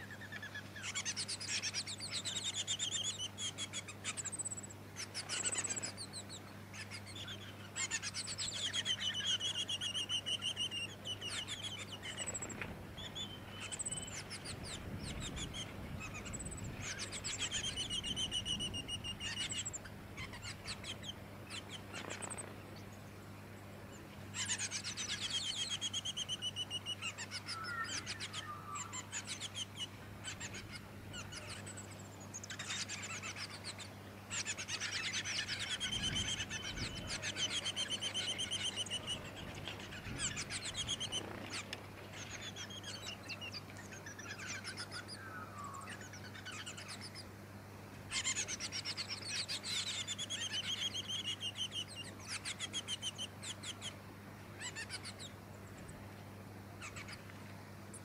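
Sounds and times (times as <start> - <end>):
bird singing rapid trills: 0.0 - 23.1, 23.9 - 47.3, 48.1 - 54.0, 54.6 - 56.0, 56.8 - 57.2.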